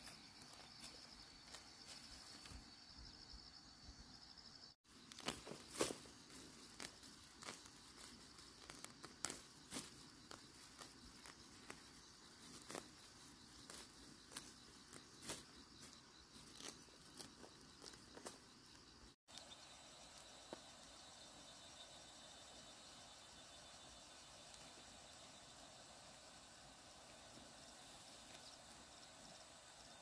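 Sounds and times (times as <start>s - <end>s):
high insect drone: 0.0s - 30.0s
weeds rustling and snapping: 4.9s - 18.4s.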